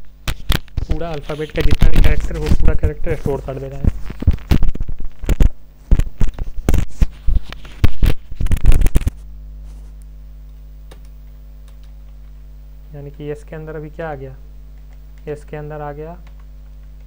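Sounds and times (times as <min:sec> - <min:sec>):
low electrical hum: 0:00.0 - 0:17.0
rustling and scraping: 0:00.4 - 0:10.0.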